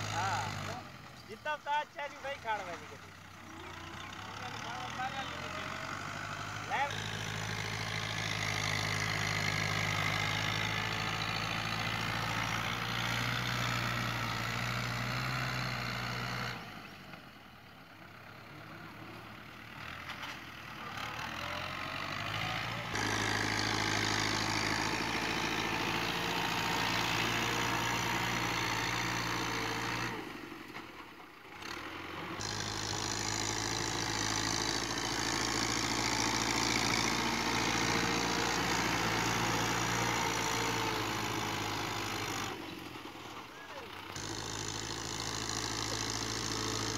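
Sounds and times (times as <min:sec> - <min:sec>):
tractor diesel engine running: 0:00.0 - 0:46.9.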